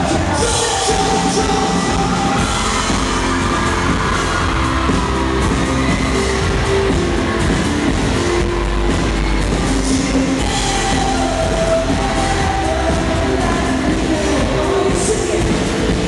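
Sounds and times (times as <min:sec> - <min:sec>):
drums: 0:00.0 - 0:16.0.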